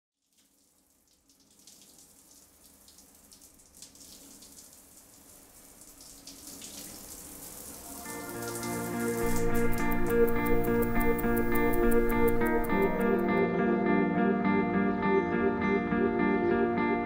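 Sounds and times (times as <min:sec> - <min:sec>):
water hissing and pattering: 0:05.7 - 0:13.4
low hum: 0:09.2 - 0:13.4.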